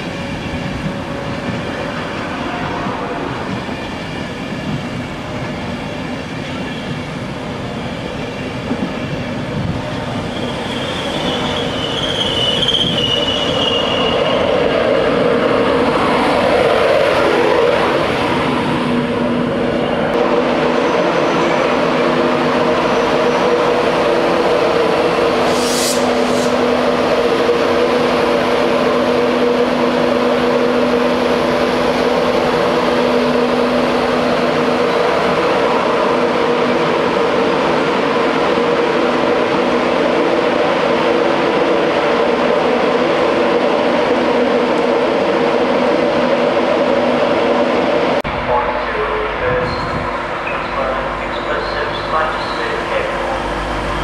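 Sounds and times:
electric locomotive humming: 0.0s - 54.0s
sharp hiss: 25.4s - 26.7s.

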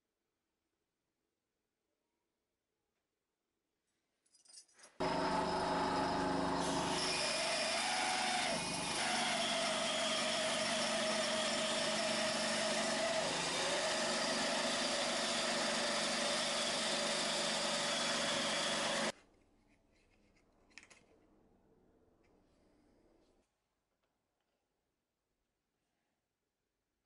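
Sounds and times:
band saw cutting resin and wood: 5.0s - 19.1s.

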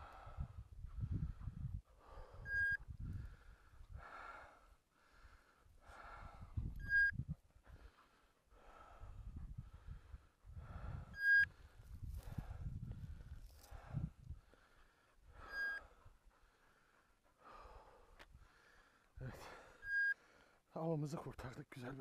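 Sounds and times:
person breathing hard: 0.0s - 6.7s, 7.6s - 20.7s
short high beeps: 2.5s - 2.8s, 6.8s - 7.2s, 11.2s - 11.5s, 19.8s - 20.2s.

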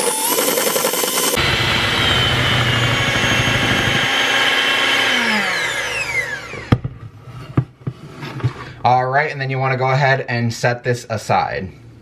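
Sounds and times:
electric hand mixer whining: 0.0s - 7.0s.

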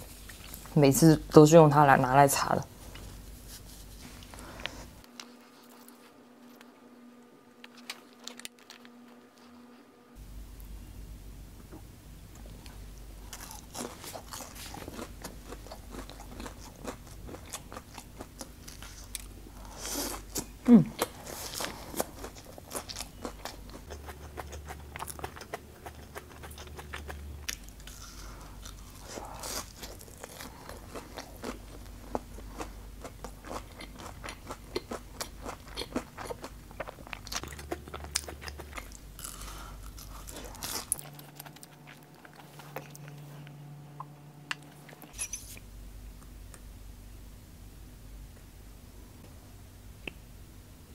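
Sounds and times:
crunching and chewing meat: 12.6s - 45.1s.

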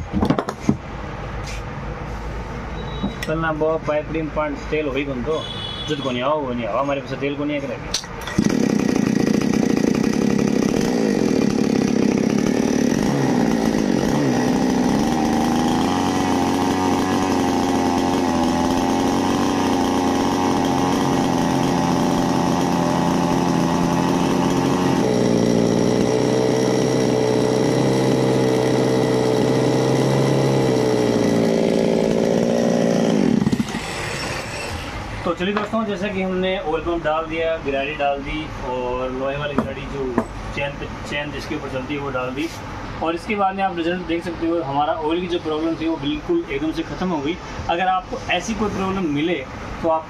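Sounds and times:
chainsaw running at high revs: 8.2s - 34.5s.

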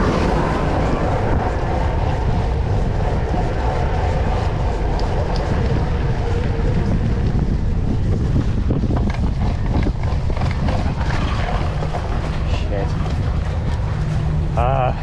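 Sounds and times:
wind rushing over microphone: 0.0s - 15.0s
tyres rolling on wet pavement: 8.9s - 15.0s.

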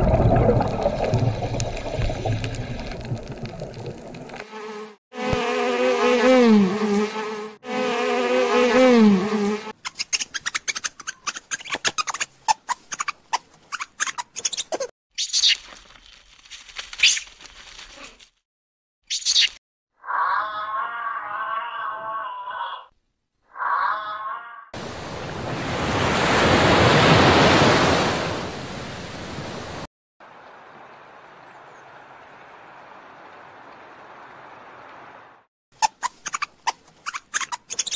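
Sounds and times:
high animal calls: 20.0s - 22.9s, 23.5s - 24.7s.

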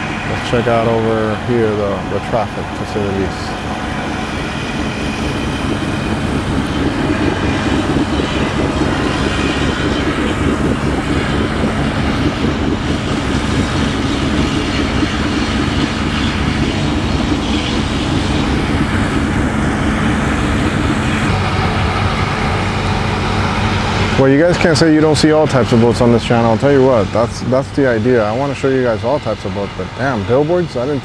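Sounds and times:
boat engines droning: 0.0s - 31.0s.

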